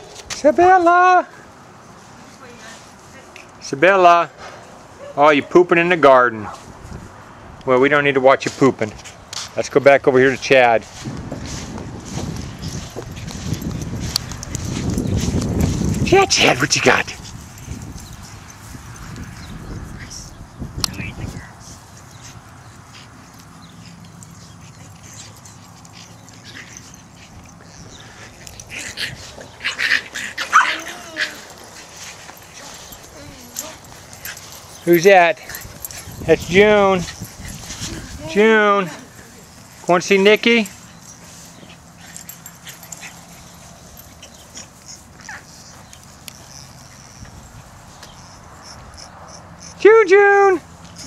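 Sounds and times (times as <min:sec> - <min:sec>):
clicks and rustling in grass: 0:10.2 - 0:49.0
puppies crying high-pitched: 0:23.2 - 0:39.8
puppy whimpering: 0:29.6 - 0:31.7.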